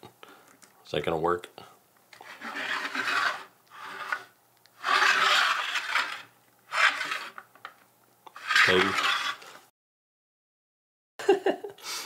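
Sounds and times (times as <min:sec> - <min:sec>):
plastic scraping across wooden tabletop: 0:02.2 - 0:07.4, 0:08.3 - 0:09.6.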